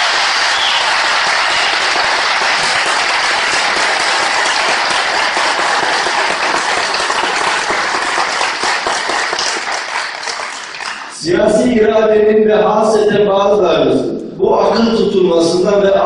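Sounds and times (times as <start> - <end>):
large audience applauding: 0.0 - 11.2.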